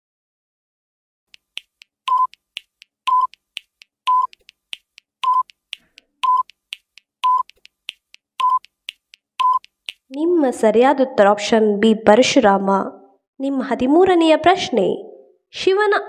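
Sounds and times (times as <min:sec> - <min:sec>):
clock-like ticking: 0:01.3 - 0:10.2
short beeps: 0:02.1 - 0:02.3, 0:03.1 - 0:03.3, 0:04.1 - 0:04.3, 0:05.2 - 0:05.5, 0:06.2 - 0:06.5, 0:08.4 - 0:08.6, 0:09.4 - 0:09.6.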